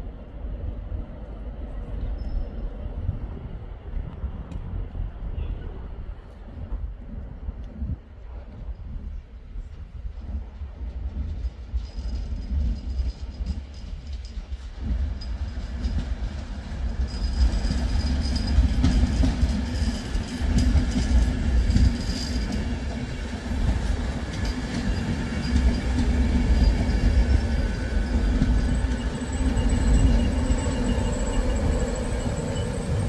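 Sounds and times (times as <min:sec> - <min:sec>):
train rumbling on rails: 0:00.0 - 0:33.0.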